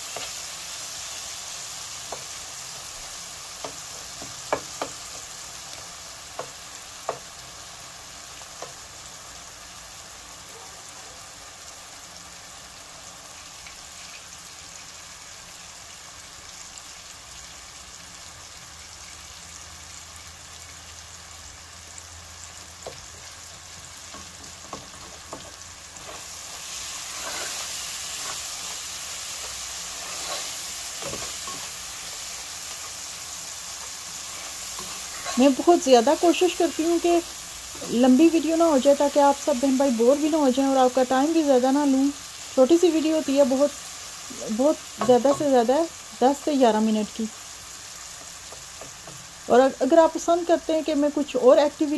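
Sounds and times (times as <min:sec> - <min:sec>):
masala sizzling in a pot: 0:00.0 - 0:51.9
spatula tapping pot: 0:03.6 - 0:05.3, 0:45.0 - 0:45.6.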